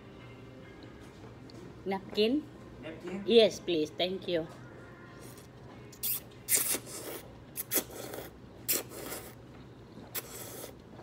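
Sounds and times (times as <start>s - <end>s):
eating slurps and mouth noises: 5.3s - 11.0s.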